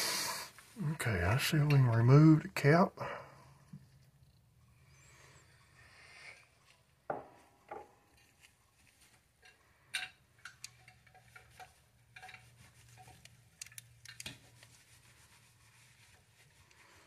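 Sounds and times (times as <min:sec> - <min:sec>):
metal reel clicks and knocks: 0:09.4 - 0:14.5.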